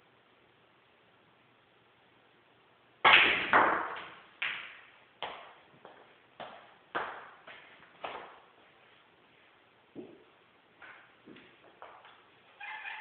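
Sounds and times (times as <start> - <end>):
cue striking ball: 3.1 - 4.8
snooker balls clacking: 3.1 - 8.4.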